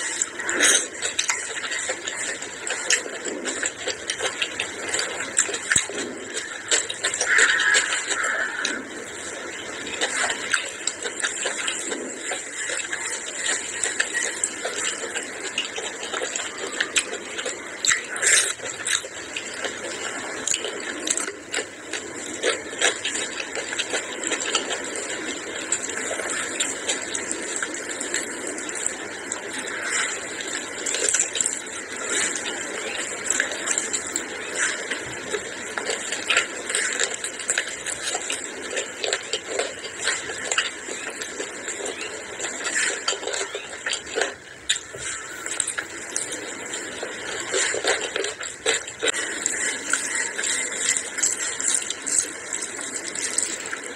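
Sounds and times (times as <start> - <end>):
wet chewing: 0.0 - 53.9.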